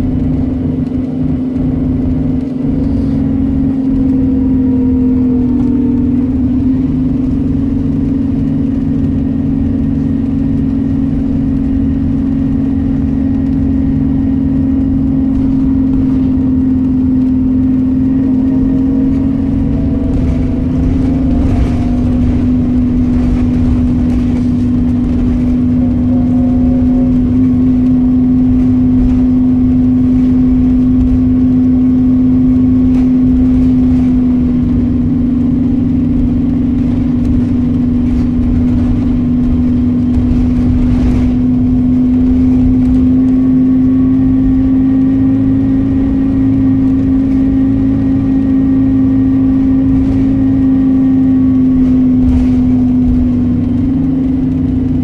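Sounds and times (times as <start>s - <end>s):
bus drivetrain drone: 0.0s - 55.0s
faint rising whines: 0.0s - 55.0s
low road rumble: 0.0s - 55.0s.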